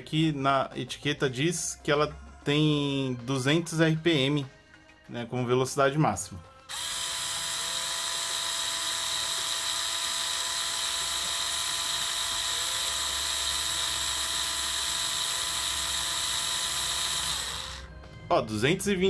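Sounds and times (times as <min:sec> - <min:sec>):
cordless screwdriver motor whine: 0:06.7 - 0:18.0.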